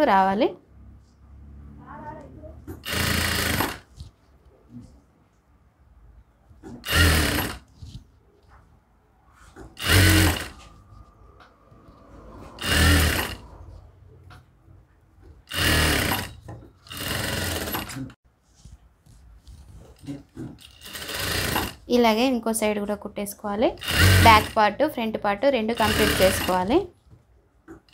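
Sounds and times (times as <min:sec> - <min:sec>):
sewing machine stitching: 0:02.7 - 0:04.1, 0:06.6 - 0:08.0, 0:09.6 - 0:10.8, 0:12.5 - 0:13.6, 0:15.3 - 0:18.2, 0:20.1 - 0:21.9, 0:23.7 - 0:24.7, 0:25.6 - 0:26.9.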